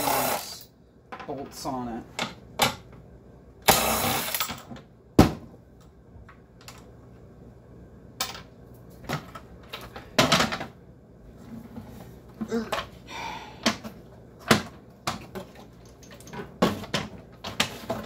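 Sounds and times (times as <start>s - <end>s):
tools clicking and rattling: 15.8s - 18.0s.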